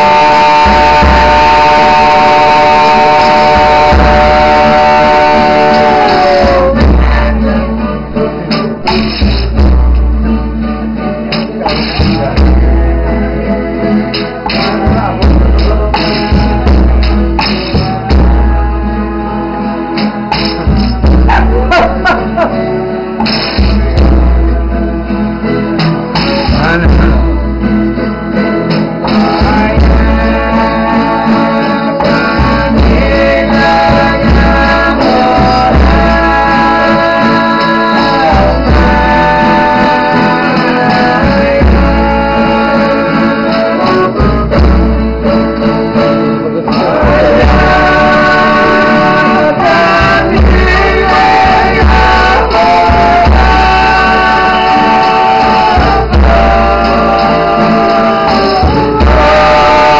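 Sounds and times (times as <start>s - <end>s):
men singing together: 0.0s - 9.9s, 11.1s - 27.4s, 28.7s - 59.9s
string instruments: 0.0s - 59.9s
low pulsing beat: 47.0s - 57.8s.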